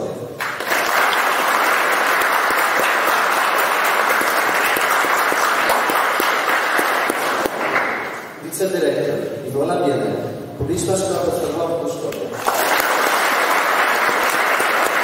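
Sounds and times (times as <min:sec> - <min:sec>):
audience applauding: 0:00.4 - 0:08.3, 0:12.3 - 0:15.0.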